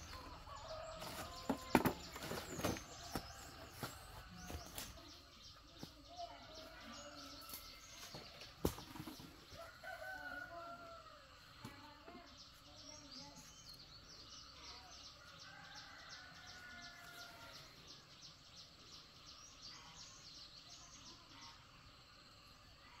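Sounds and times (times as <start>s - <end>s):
small birds chirping: 0.0s - 23.0s
rooster crowing: 9.6s - 11.3s.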